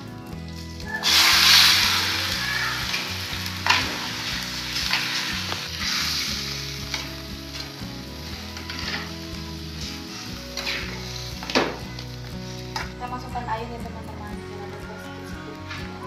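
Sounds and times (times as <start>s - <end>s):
chicken sizzling in hot oil: 0.6s - 12.9s
metal ladle scraping a wok: 1.0s - 7.1s, 8.5s - 11.5s.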